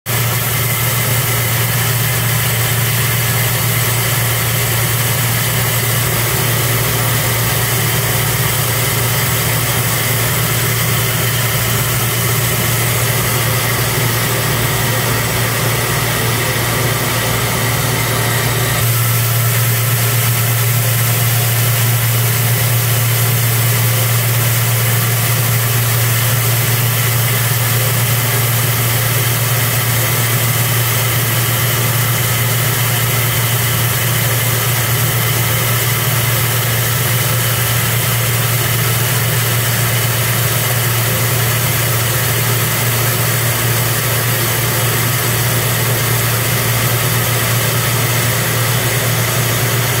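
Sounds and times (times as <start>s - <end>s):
machine humming: 0.1s - 50.0s
rice pouring hiss: 18.7s - 25.0s.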